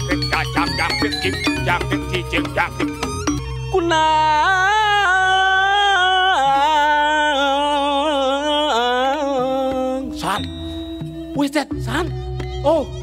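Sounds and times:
woman singing with vibrato: 3.7 - 10.1.

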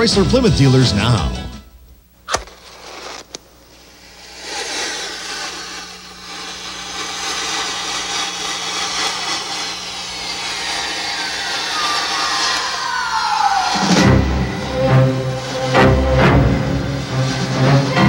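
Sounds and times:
match flaring: 1.9 - 13.8
falling whistle: 6.5 - 18.0.

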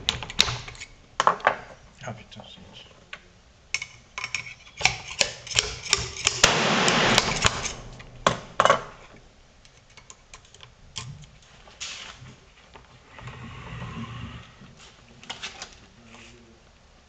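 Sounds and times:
clicks and knocks of metal and wood: 3.7 - 6.5.

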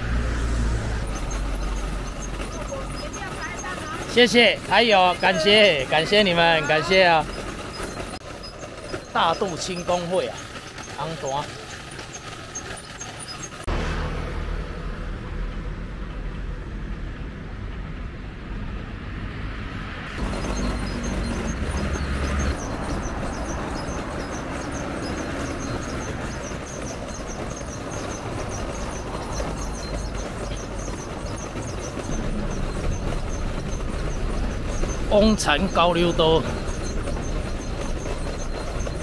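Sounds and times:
passing traffic rumble: 0.0 - 39.0
rapid high-pitched ticking: 0.2 - 13.7, 20.1 - 39.0.

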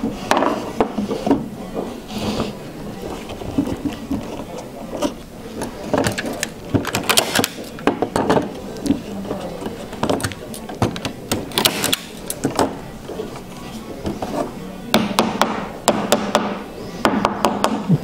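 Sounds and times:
staple gun clacks: 6.1 - 7.7, 11.0 - 12.4.

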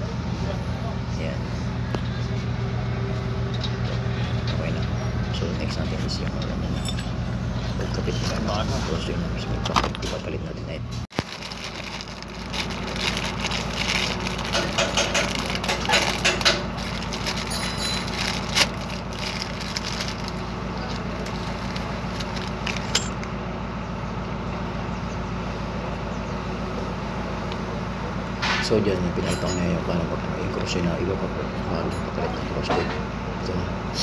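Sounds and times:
low background hum: 0.0 - 34.0
plastic wrapper crinkling: 11.1 - 22.9.

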